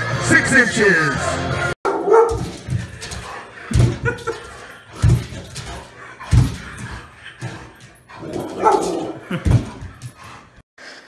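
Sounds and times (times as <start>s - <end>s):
large dog barking: 1.8s - 10.6s.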